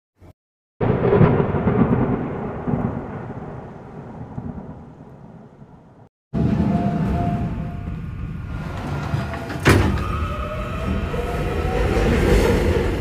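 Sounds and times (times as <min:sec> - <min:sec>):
boom with rumbling tail: 0:00.8 - 0:05.7.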